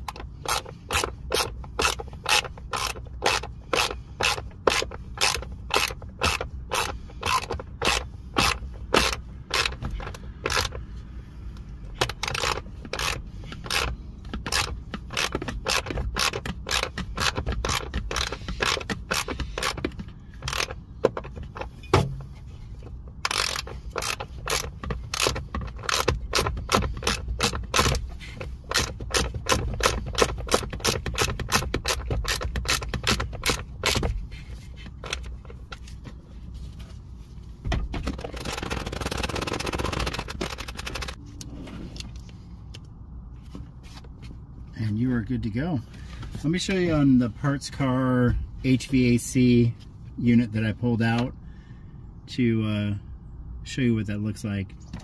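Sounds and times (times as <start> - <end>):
socket ratchet clicking: 0.0 - 10.9, 11.9 - 21.7, 23.2 - 34.2.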